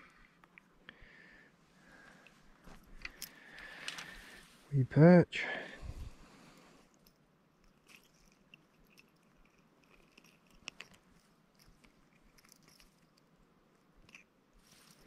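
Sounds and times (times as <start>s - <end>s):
faint small clicks: 2.2s - 4.2s.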